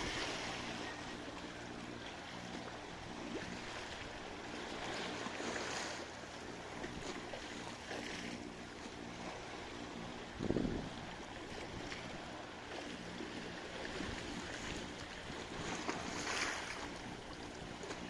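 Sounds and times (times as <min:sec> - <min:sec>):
small waves lapping against rocks: 0:11.4 - 0:18.0.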